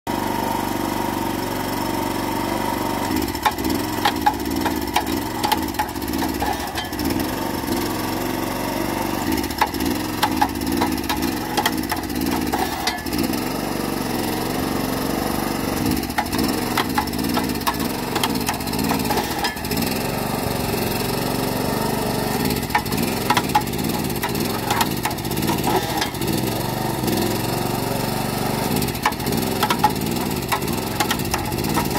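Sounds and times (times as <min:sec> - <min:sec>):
small petrol engine running: 0:00.1 - 0:31.9
spades clicking and knocking in soil: 0:03.4 - 0:07.5, 0:09.3 - 0:13.2, 0:15.9 - 0:20.0, 0:22.4 - 0:26.4, 0:28.8 - 0:31.9.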